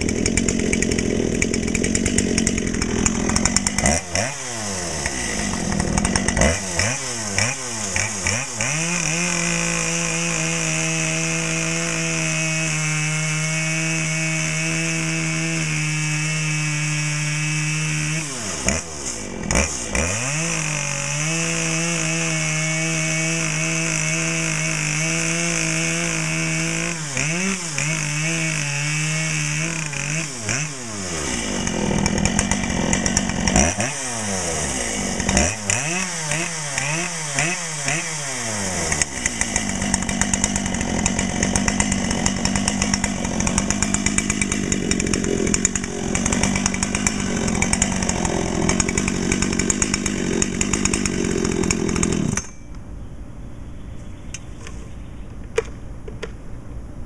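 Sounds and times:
chainsaw cutting log: 0:00.0 - 0:52.7.

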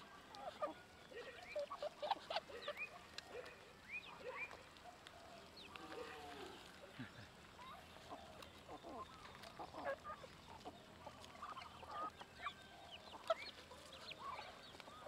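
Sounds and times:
faint clicks: 0:02.5 - 0:11.7.

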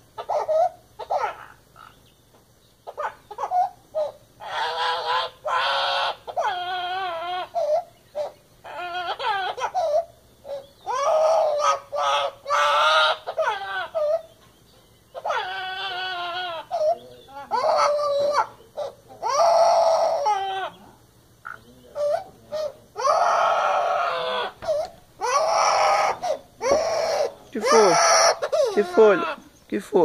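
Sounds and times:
parrot wailing crying calls: 0:00.0 - 0:02.1, 0:02.8 - 0:29.6.

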